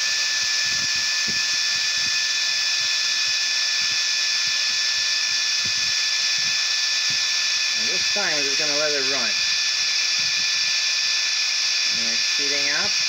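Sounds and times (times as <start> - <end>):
cooling fan whirring with high whine: 0.0 - 13.0.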